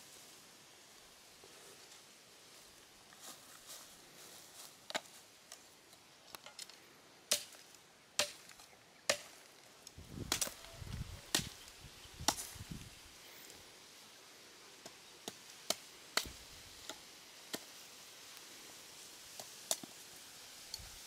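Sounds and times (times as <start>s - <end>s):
crackling and rustling: 0.0s - 21.0s.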